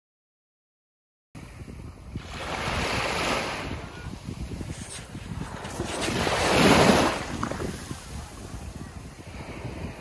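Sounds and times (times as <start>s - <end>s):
wind rumble on microphone: 1.4s - 10.0s
surf washing onto sand: 2.1s - 10.0s.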